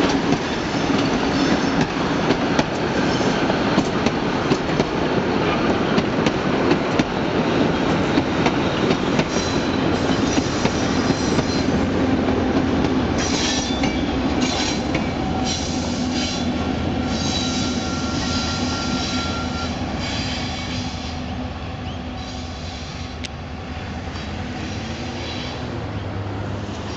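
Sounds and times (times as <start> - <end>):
train wheels clicking over rail joints: 0.0 - 16.6
wheels squealing on rails: 0.5 - 1.9, 8.2 - 11.8, 13.2 - 23.2, 24.1 - 26.9.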